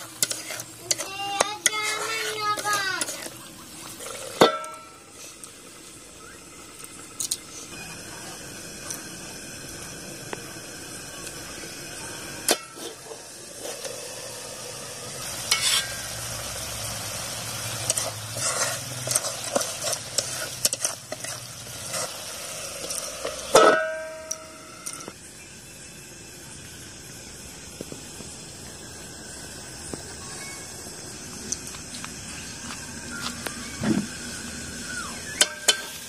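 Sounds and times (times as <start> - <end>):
metal utensil scraping a pan: 0.0 - 5.4, 12.5 - 13.9, 15.2 - 16.2, 17.6 - 25.1, 35.4 - 36.0
curry sizzling in a pan: 0.0 - 36.0
ringing metal clang: 4.4 - 5.0, 23.5 - 25.1, 35.4 - 36.0.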